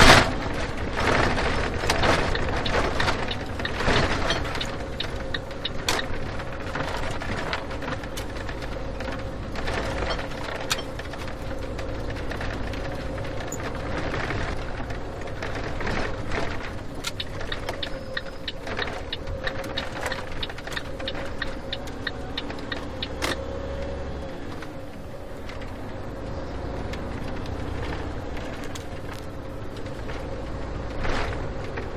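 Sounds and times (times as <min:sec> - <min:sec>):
short rattles and clicks: 0:00.0 - 0:23.4
car engine running: 0:00.0 - 0:31.9
road noise rumble: 0:00.0 - 0:31.9.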